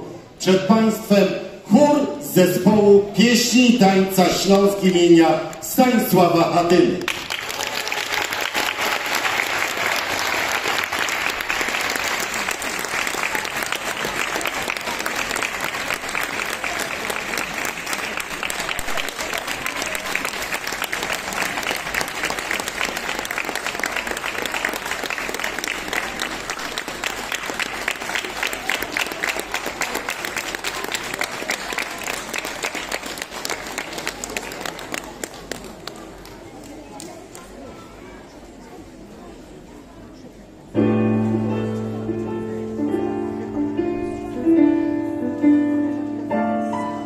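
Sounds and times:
audience applauding: 7.0 - 37.4.

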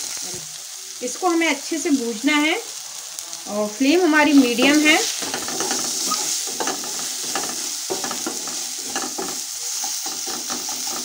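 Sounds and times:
oil sizzling: 0.0 - 11.0
wooden spatula scraping pan: 4.4 - 9.4.

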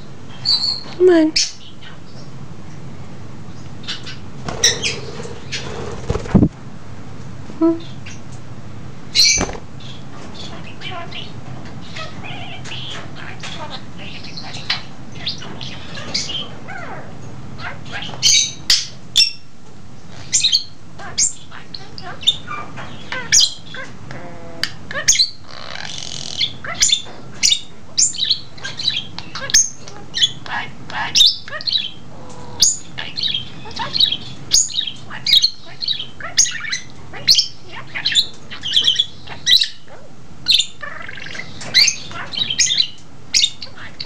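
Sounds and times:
budgerigar chirps and squawks: 3.8 - 5.9, 20.1 - 44.0.

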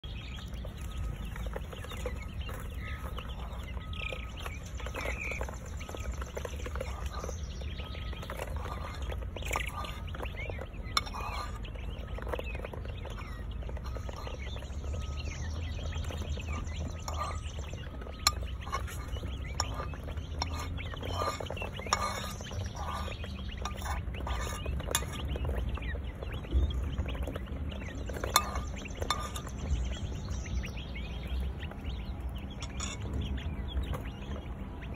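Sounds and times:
quail chirps and peeps: 0.0 - 34.9.

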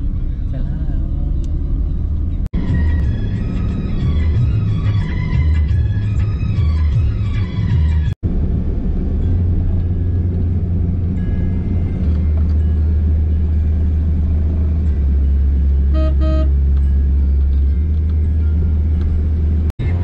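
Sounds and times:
car road rumble: 0.0 - 20.0
car horn beeps: 15.9 - 16.7.

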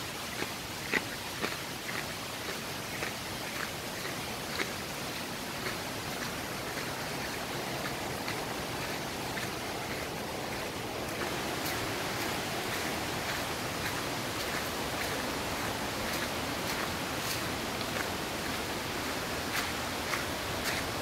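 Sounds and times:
steady background hiss: 0.0 - 21.0
footsteps crunching on dry leaves: 4.5 - 21.0.

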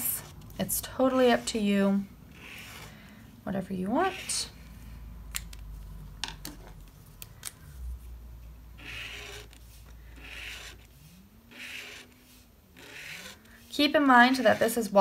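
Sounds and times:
brush pen scratching paper: 2.3 - 3.0, 4.0 - 4.6, 8.8 - 15.0.

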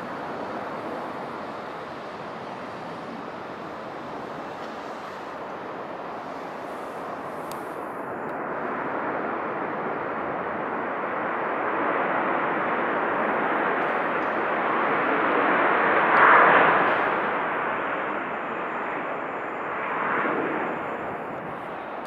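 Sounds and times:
jet engines roaring: 0.0 - 22.0.

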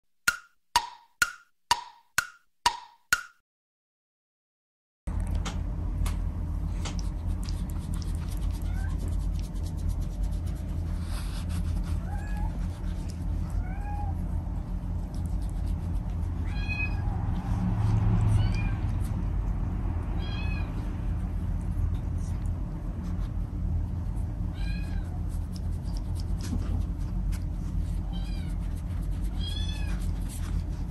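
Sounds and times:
cat meowing: 13.5 - 14.2, 16.4 - 17.2, 18.3 - 18.8, 20.2 - 20.8, 29.3 - 30.1.

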